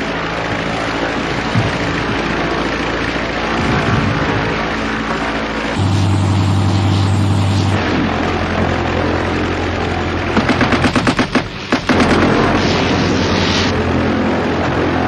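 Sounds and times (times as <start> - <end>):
aircraft engine droning: 0.0 - 15.0
machine-gun fire: 10.2 - 13.7.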